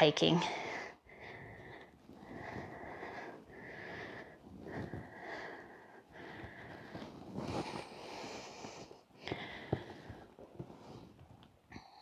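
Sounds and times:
woman breathing through nose: 0:00.5 - 0:10.9.

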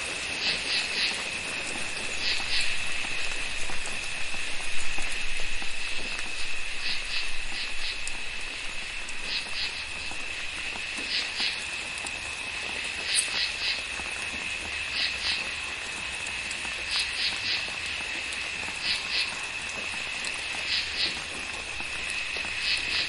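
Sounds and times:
high insect trill: 0:00.0 - 0:23.0
rain patter: 0:00.0 - 0:23.0
frog chirping calls: 0:02.0 - 0:02.8, 0:06.7 - 0:08.1, 0:09.2 - 0:10.2, 0:13.0 - 0:13.9, 0:18.8 - 0:19.4, 0:20.5 - 0:21.3, 0:22.6 - 0:23.0.

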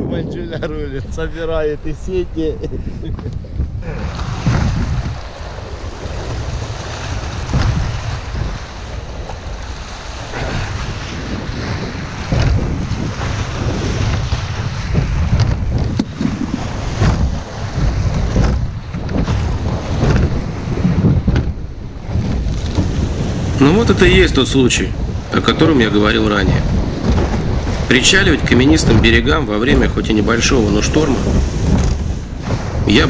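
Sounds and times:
wind buffeting microphone: 0:00.0 - 0:33.0
waves breaking over stones: 0:03.9 - 0:33.0
sharp knocks: 0:12.3 - 0:12.8, 0:17.0 - 0:21.6.

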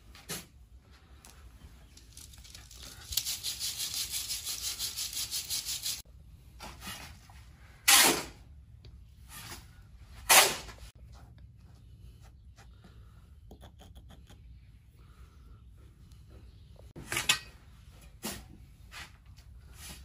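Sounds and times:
sand sieve rattling: 0:01.9 - 0:06.0.

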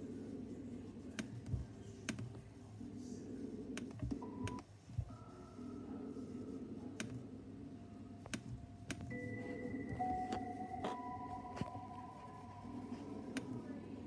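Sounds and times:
low steady hum: 0:00.0 - 0:14.0
computer mouse and key clicks: 0:01.1 - 0:02.4, 0:03.7 - 0:04.6, 0:07.0 - 0:07.2, 0:08.2 - 0:09.2
faint held tones: 0:03.1 - 0:14.0.

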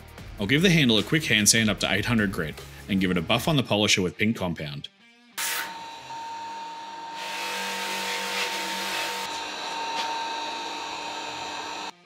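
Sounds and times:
polishing buffer whining: 0:05.4 - 0:12.0.

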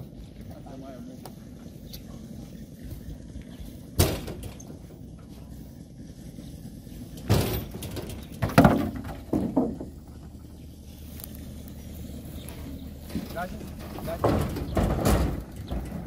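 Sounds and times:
wooden poles knocking and thudding: 0:07.2 - 0:10.1, 0:13.1 - 0:16.0.

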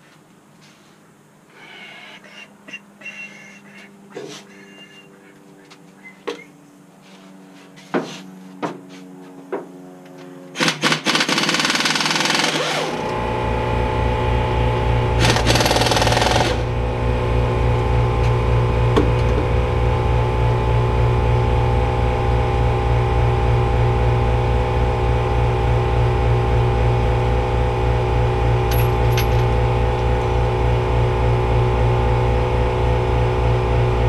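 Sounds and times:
motor-driven machine running: 0:10.6 - 0:34.0.

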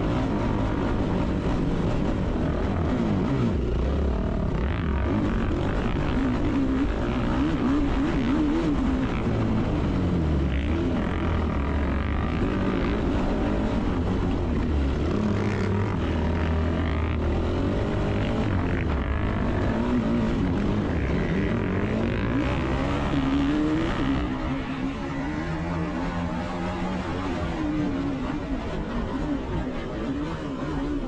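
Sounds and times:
quad bike engine racing: 0:00.0 - 0:31.0.

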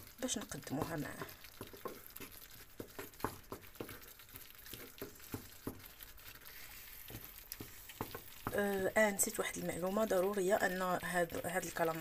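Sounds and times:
sauce sizzling and bubbling: 0:00.0 - 0:12.0
wooden spatula scraping pan: 0:00.4 - 0:08.6.

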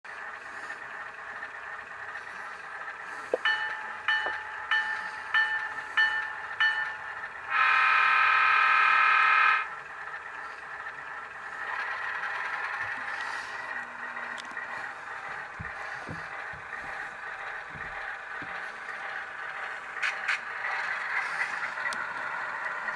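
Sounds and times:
diesel engine idle: 0:00.1 - 0:22.9
locomotive bell ringing: 0:03.4 - 0:07.5.

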